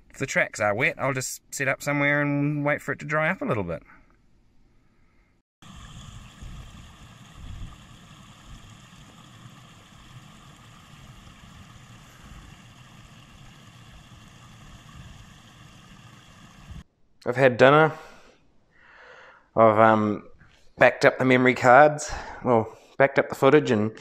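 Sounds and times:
creek water rushing: 0:05.6 - 0:16.8
low rumble: 0:05.6 - 0:16.8.

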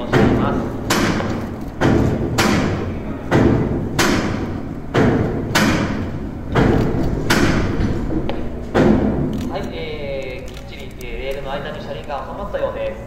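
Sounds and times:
heavy knocks echoing in hall: 0:00.0 - 0:10.0.

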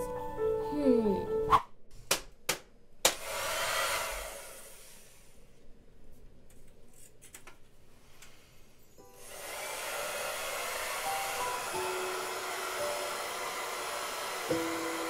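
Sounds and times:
soft music notes: 0:00.0 - 0:01.5
hair dryer blowing air: 0:03.1 - 0:05.2, 0:09.2 - 0:15.0.

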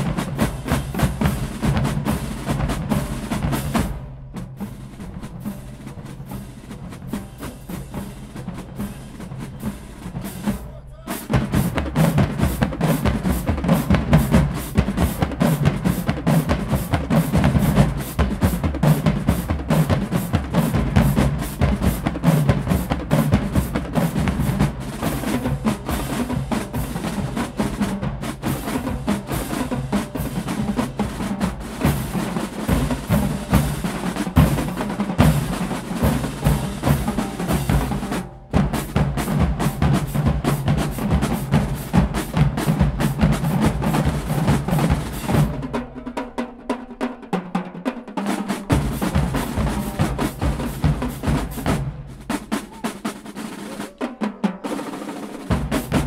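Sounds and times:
bass drums: 0:00.0 - 0:46.0, 0:48.6 - 0:53.1, 0:55.5 - 0:56.0
snare drums: 0:00.0 - 0:56.0
tenor drums: 0:00.0 - 0:56.0.

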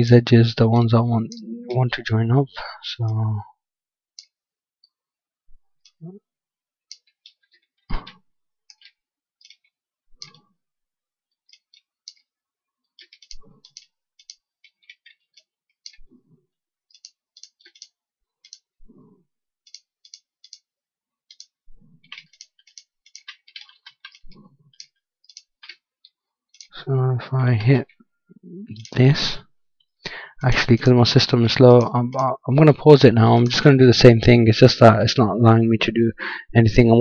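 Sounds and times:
computer mouse clicking: 0:06.9 - 0:08.1, 0:08.7 - 0:10.4, 0:11.4 - 0:12.3, 0:13.0 - 0:16.1, 0:16.9 - 0:18.7, 0:19.7 - 0:20.7, 0:21.3 - 0:26.7.

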